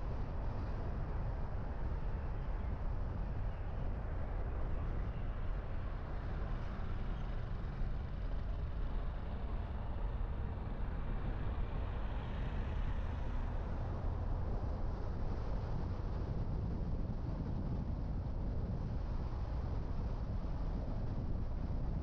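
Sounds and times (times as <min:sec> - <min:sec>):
car engine and tyre rumble: 0:00.0 - 0:22.0.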